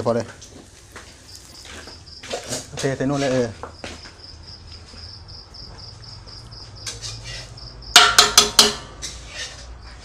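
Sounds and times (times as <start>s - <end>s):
crickets chirping: 0.0s - 10.0s
metal ladle clinking on pot: 6.9s - 9.2s.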